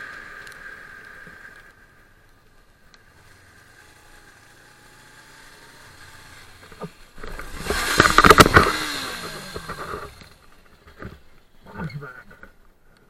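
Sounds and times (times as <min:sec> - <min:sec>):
motorcycle crash impacts and scraping: 0:06.6 - 0:11.2.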